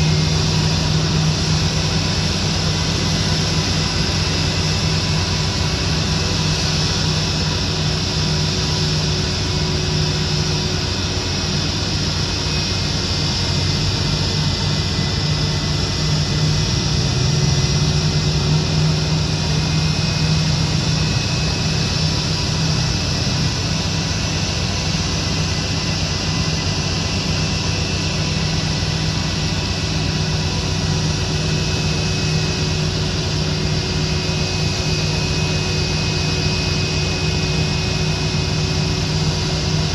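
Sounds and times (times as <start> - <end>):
jet engines idling: 0.0 - 39.9
low engine drone: 0.0 - 39.9.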